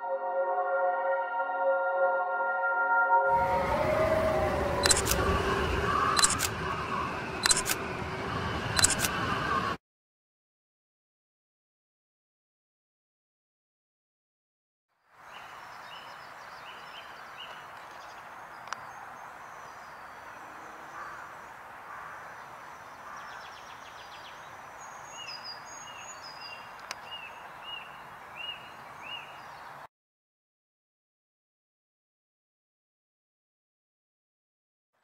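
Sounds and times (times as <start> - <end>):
sharp clicks: 4.8 - 5.3, 6.2 - 6.6, 7.4 - 7.8, 8.8 - 9.2
high thin birdsong: 15.1 - 29.9
birds calling: 15.4 - 29.8.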